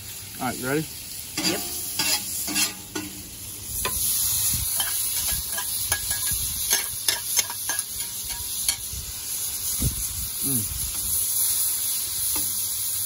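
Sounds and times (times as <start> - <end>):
mushrooms sizzling in a skillet: 0.0 - 13.0
sharp clicks against a pan: 4.8 - 8.9, 12.3 - 12.6.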